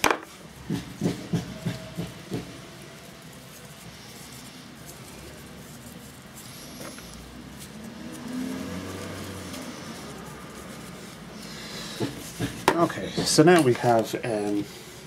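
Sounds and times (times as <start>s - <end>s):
faint handling noise: 12.0s - 15.0s.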